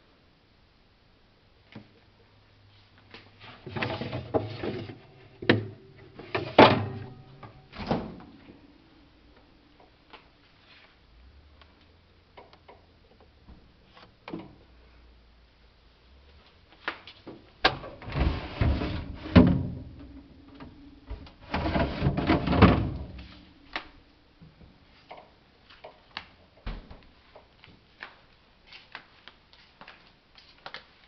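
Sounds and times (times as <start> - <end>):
plastic drawers sliding and rattling: 3.4 - 7.1, 17.7 - 20.8, 21.4 - 23.3.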